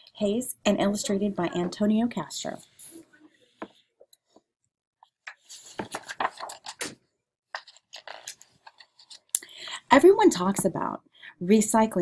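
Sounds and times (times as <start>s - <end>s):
book pages flipping: 5.0s - 9.4s.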